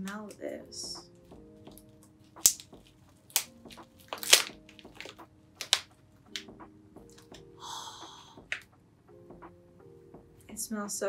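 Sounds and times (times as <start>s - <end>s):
tea pouch crackling: 1.7s - 6.5s.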